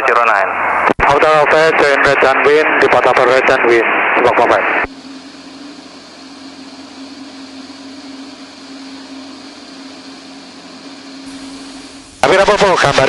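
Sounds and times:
propeller aircraft engine drone: 0:04.7 - 0:13.0.

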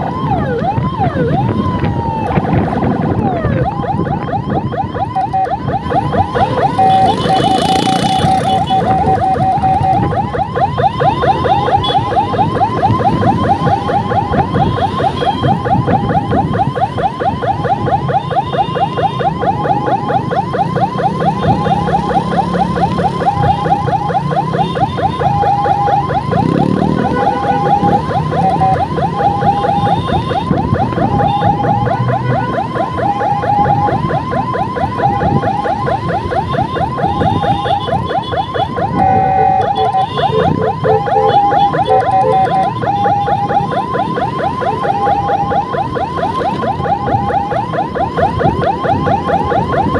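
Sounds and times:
electronic siren warbling: 0:00.0 - 0:49.9
road noise: 0:00.0 - 0:49.9.

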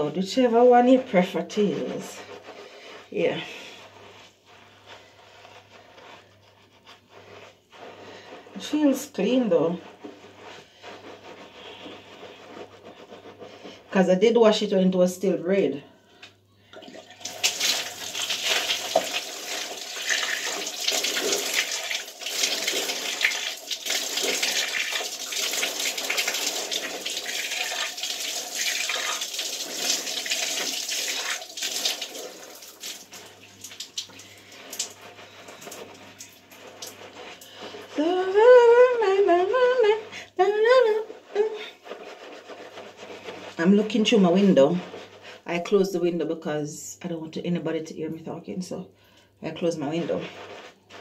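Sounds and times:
rubbing: 0:00.0 - 0:14.6, 0:17.2 - 0:46.0, 0:49.6 - 0:51.0
shower water running and splashing: 0:16.9 - 0:38.0.

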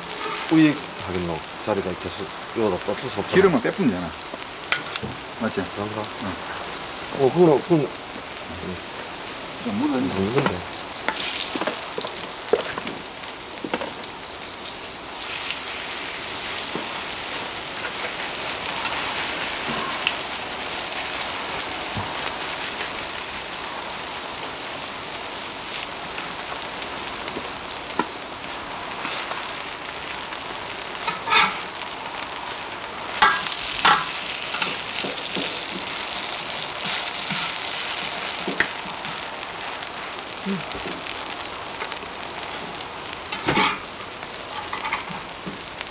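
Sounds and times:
spatulas scraping a pan: 0:00.0 - 0:00.7, 0:31.0 - 0:31.8, 0:33.2 - 0:39.2, 0:43.3 - 0:43.9, 0:44.5 - 0:45.3
pancakes sizzling in oil: 0:00.0 - 0:45.9.

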